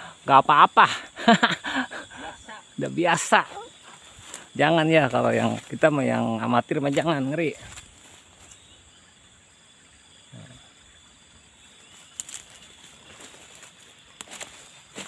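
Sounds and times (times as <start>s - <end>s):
high-pitched insect chorus: 0.0s - 15.0s
footsteps on dry leaves: 3.4s - 8.7s, 11.9s - 15.0s.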